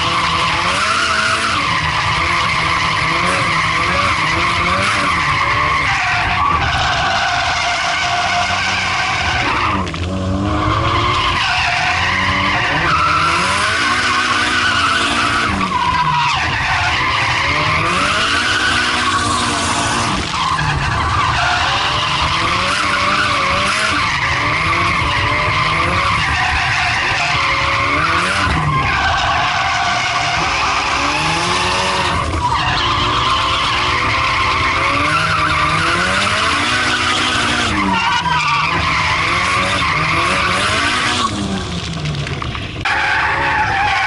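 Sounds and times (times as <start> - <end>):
tyre squeal: 0.0 - 41.6
car engine revving hard: 0.0 - 42.1.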